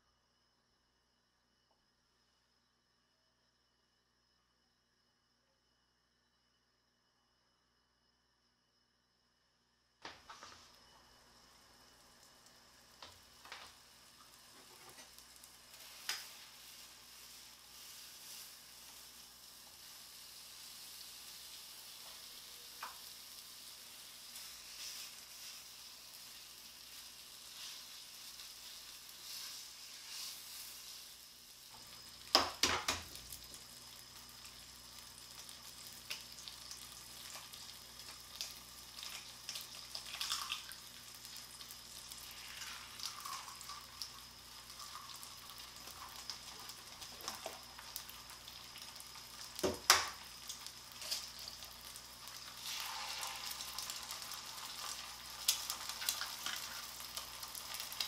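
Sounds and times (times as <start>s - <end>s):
bacon sizzling in a frying pan: 10.1s - 58.0s
egg cracked into pan: 32.3s - 33.1s, 49.6s - 51.6s.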